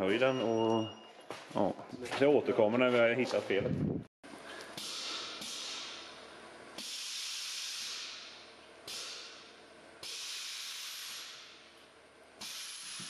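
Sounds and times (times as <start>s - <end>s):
air suspension hissing: 6.8s - 9.4s, 10.0s - 11.6s, 12.4s - 13.0s.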